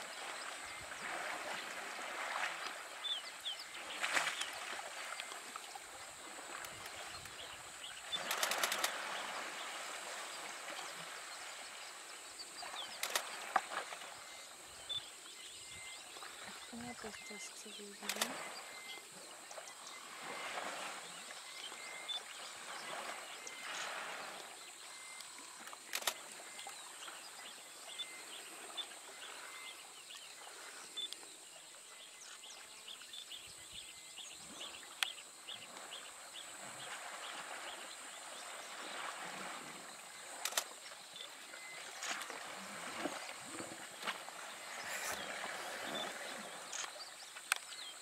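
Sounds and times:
water sloshing and splashing: 0.0s - 11.6s, 36.6s - 47.5s
sharp clicks: 8.2s - 9.0s, 13.0s - 13.3s, 18.0s - 18.4s, 25.6s - 26.2s, 40.4s - 40.7s.

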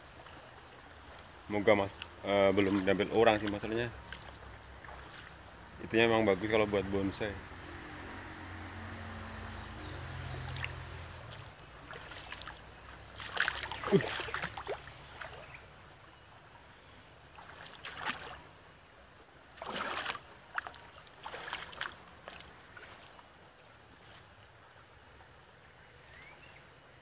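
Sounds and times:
footsteps rustling through grass: 2.0s - 5.5s, 11.3s - 14.6s, 23.9s - 24.4s.

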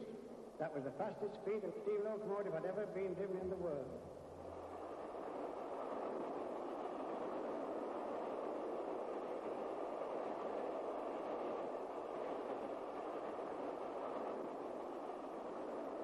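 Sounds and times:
steam train rushing: 3.6s - 16.0s.

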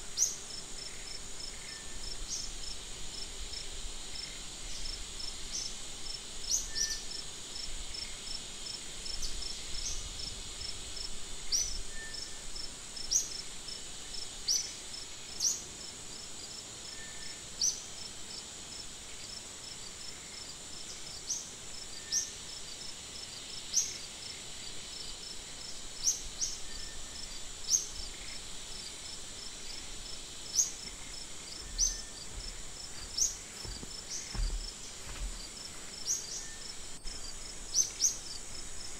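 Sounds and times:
insects buzzing with pulsing trill: 0.0s - 38.9s
sharp high insect chirps: 26.0s - 34.7s.

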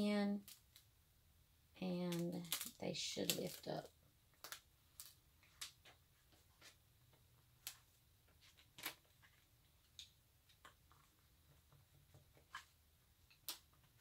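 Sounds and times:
transfer tape peeling crackles: 0.4s - 0.9s, 1.9s - 5.9s, 8.5s - 9.4s.

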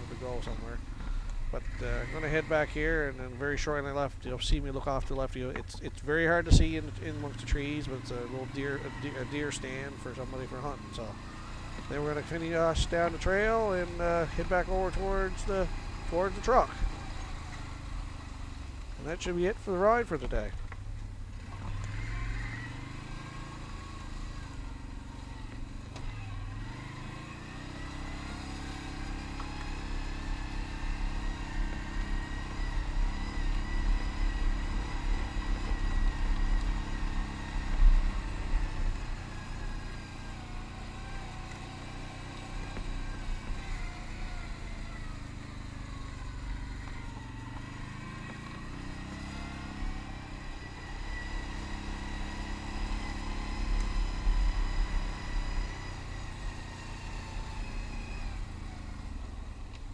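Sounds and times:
atv engine running: 0.0s - 59.9s.

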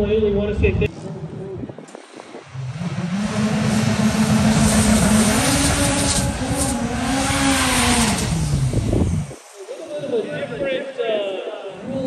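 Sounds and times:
racing car engine at high revs: 2.2s - 9.8s.

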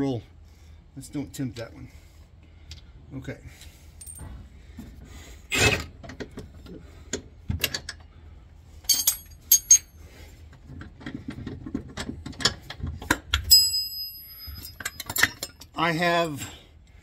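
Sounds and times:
metal clicks and clinks: 8.9s - 9.9s, 13.3s - 15.8s.

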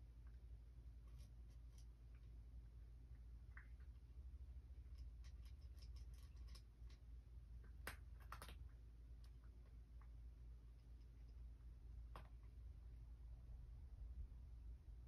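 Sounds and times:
low steady hum: 0.0s - 15.0s
cat chewing clicks: 7.7s - 8.7s.

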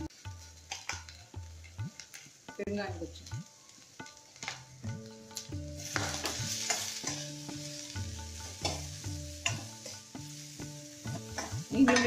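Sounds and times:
faint oil sizzle: 0.0s - 12.0s
soft background music: 0.0s - 12.0s
spatula scraping a pan: 5.8s - 10.1s.

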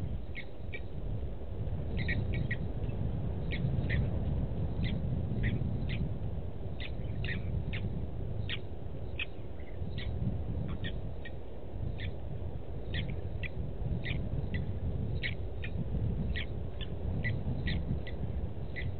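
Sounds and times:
steady low rumble: 0.0s - 18.9s
lapwings calling: 2.0s - 2.6s.

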